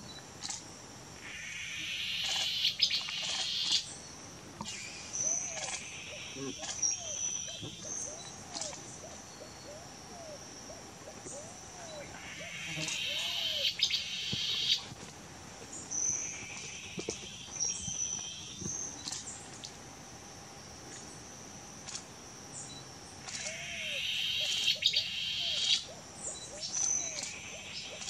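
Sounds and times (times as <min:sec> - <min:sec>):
high insect drone: 0:00.0 - 0:28.0
buzzing insects: 0:00.4 - 0:25.9
bird singing low notes: 0:04.7 - 0:14.9.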